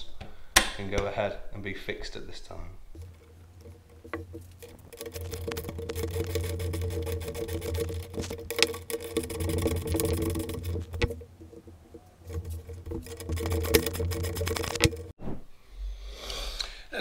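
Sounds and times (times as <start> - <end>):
small motor tool rattling: 2.9 - 15.1.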